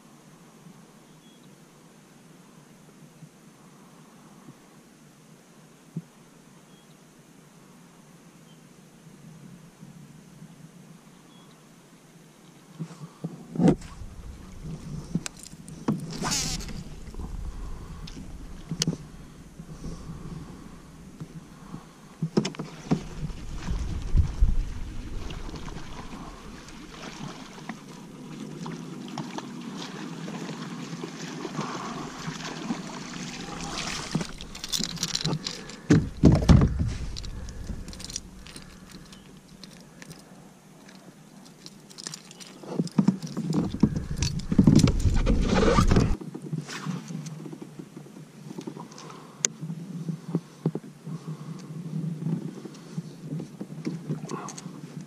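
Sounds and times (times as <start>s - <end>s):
water sloshing against hull: 13.6s - 46.2s
deep rumble: 13.7s - 22.2s, 23.0s - 27.3s, 33.1s - 39.9s, 43.6s - 46.2s
knocks and clicks on boat: 34.0s - 39.8s, 42.0s - 46.2s.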